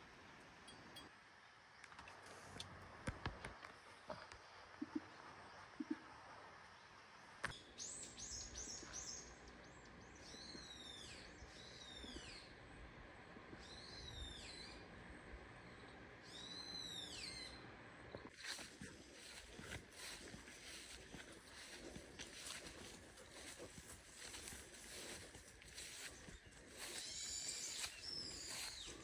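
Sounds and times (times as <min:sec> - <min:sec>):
forest bird calling: 0:07.5 - 0:09.4, 0:13.6 - 0:14.9, 0:16.2 - 0:17.7, 0:20.0 - 0:29.0.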